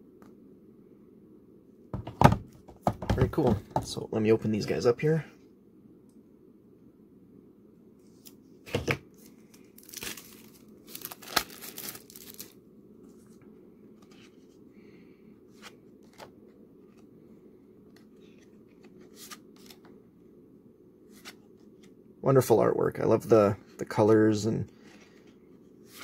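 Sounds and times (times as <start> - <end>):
low steady hum: 0.0 - 26.0
shrink-wrap tearing and crinkling: 9.6 - 12.6.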